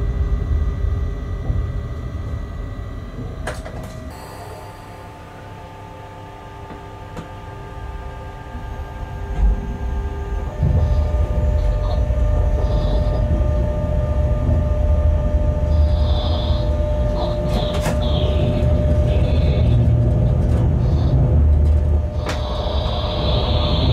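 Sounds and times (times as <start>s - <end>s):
electric locomotive hum: 0.0s - 23.9s
train wheels rumbling: 9.3s - 23.9s.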